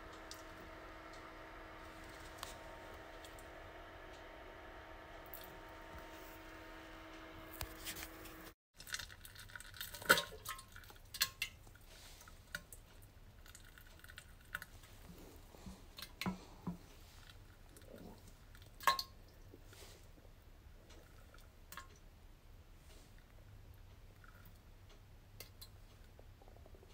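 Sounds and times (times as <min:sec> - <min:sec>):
steady hum: 0:00.0 - 0:08.6.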